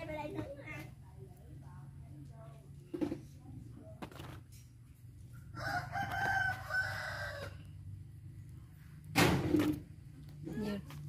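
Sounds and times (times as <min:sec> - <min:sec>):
rooster crowing: 0:05.5 - 0:07.7.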